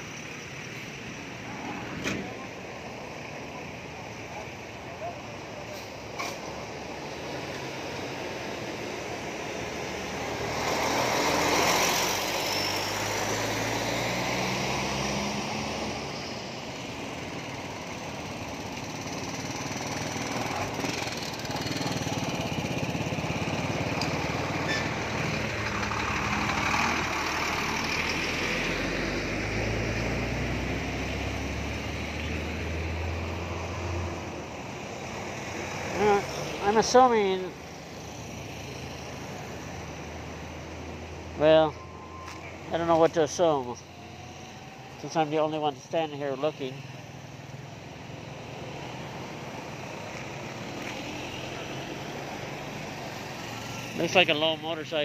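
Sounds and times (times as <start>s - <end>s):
highway traffic passing: 0.0s - 55.0s.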